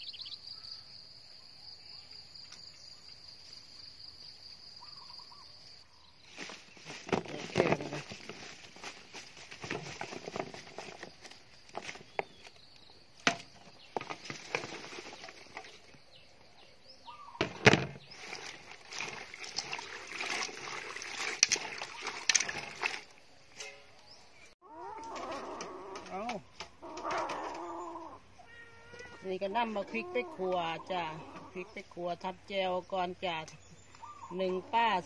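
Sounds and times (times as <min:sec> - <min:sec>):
flowers rustling: 0:06.2 - 0:12.6, 0:13.6 - 0:16.0, 0:17.5 - 0:23.1.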